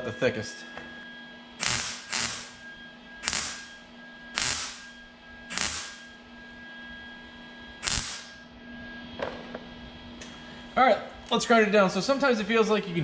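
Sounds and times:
welder crackling bursts: 1.6s - 2.6s, 3.2s - 3.7s, 4.4s - 4.9s, 5.5s - 6.1s, 7.8s - 8.4s.

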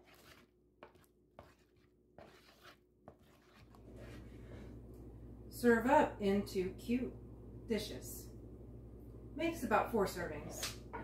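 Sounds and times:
wooden spoon scraping bowl: 0.0s - 4.5s
low room hum: 0.0s - 11.0s.

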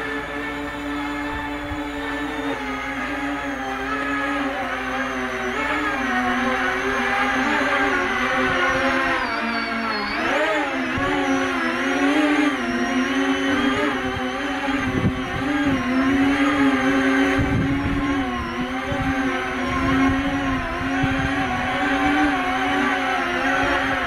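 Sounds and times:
electric motors and propellers whining: 0.0s - 24.0s
wind rumble on microphone: 12.1s - 24.0s.

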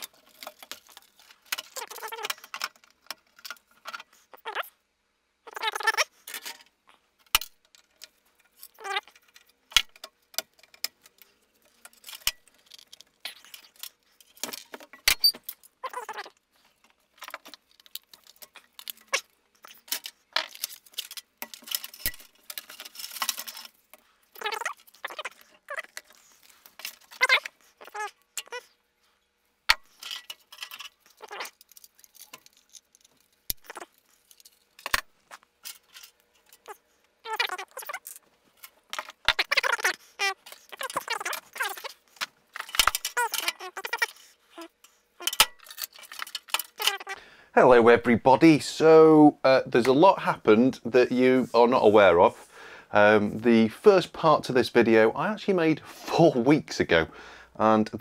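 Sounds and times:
circuit boards clicking and clattering: 0.0s - 4.1s, 5.9s - 28.6s, 29.7s - 44.2s, 45.2s - 47.2s.

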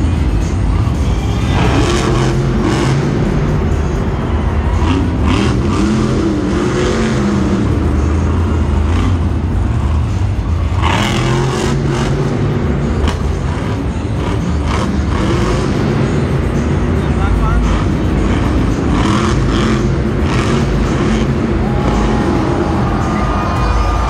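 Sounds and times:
monster truck engine revving: 0.0s - 24.0s.

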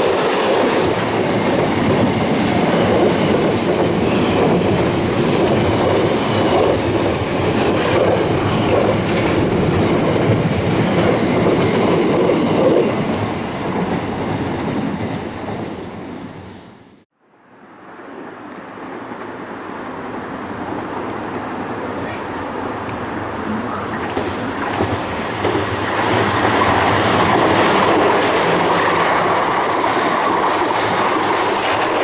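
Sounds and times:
train wheels clattering over rails: 0.0s - 16.6s, 23.9s - 32.0s
rail rumble: 0.0s - 17.1s, 18.8s - 32.0s.

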